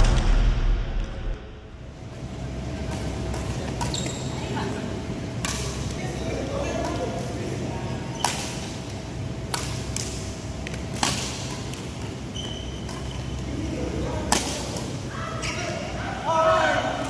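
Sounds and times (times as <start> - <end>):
rackets hitting shuttlecock: 5.4 - 6.0, 9.4 - 12.2, 14.3 - 14.9.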